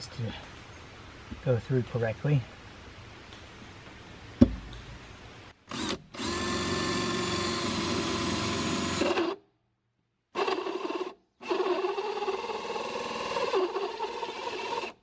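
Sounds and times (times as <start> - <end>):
sharp knock: 4.4 - 4.7
drill cutting plywood: 5.7 - 9.4, 10.4 - 15.0.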